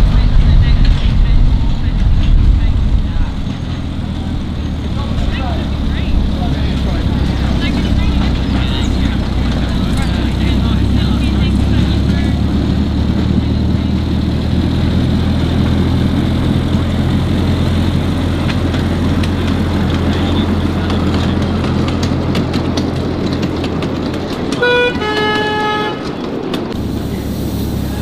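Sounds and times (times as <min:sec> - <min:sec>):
locomotive engine humming: 0:00.0 - 0:28.0
wheels clicking over track: 0:00.0 - 0:28.0
train horn tooting: 0:24.5 - 0:26.4.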